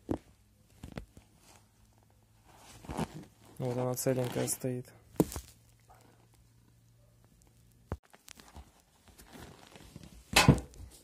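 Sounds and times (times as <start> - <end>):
foam and upholstery rustling: 2.3 - 5.6.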